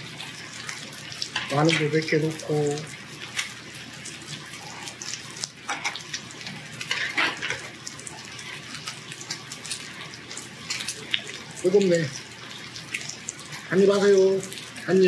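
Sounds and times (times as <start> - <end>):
pork sizzling on grill: 0.0 - 15.0
utensils clinking on grill: 1.4 - 2.1, 5.7 - 6.0, 6.8 - 7.7.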